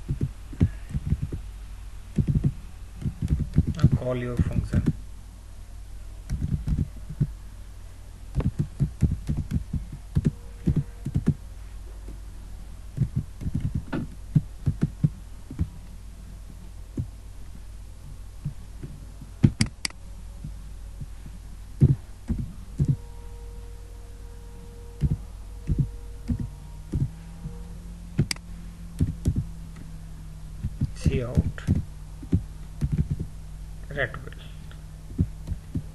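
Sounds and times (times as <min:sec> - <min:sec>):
steady low hum: 0:00.0 - 0:35.9
computer keyboard typing: 0:02.2 - 0:05.0, 0:06.3 - 0:07.2, 0:08.4 - 0:11.4.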